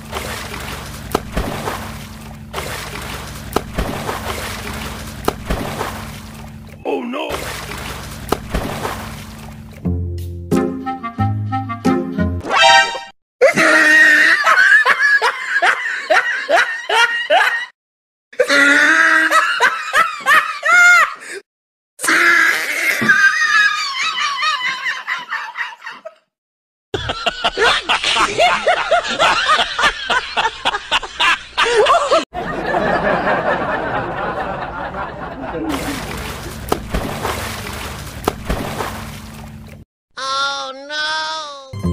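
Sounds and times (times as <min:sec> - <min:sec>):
water pouring and splashing: 0:00.0 - 0:09.9, 0:35.7 - 0:39.8
loud laughter: 0:13.4 - 0:17.7, 0:18.4 - 0:21.2, 0:22.8 - 0:26.2, 0:27.0 - 0:36.0.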